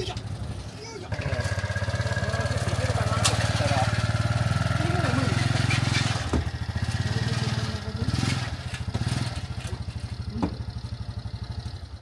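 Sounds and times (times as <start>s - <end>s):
small motorcycle engine idling: 0.0s - 12.0s.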